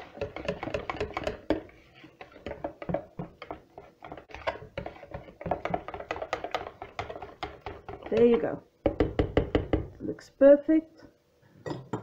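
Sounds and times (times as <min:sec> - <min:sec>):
whisk tapping plastic bowl: 0:00.0 - 0:10.0.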